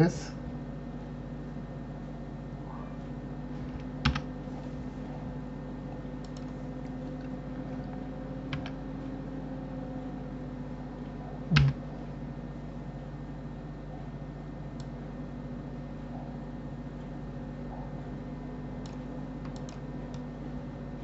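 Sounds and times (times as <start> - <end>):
low hum: 0.2 - 21.0
keyboard and mouse clicks: 6.2 - 6.6, 8.5 - 8.8, 11.5 - 11.8, 18.8 - 20.2.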